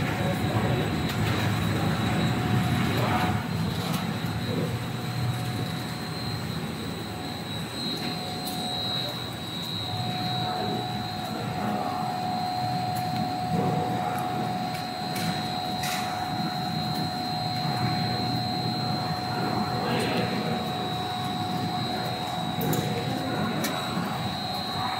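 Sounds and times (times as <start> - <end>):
high machine whine: 0.0 - 24.9
motors and fans humming: 0.0 - 24.9
steady machine tone: 0.0 - 24.9.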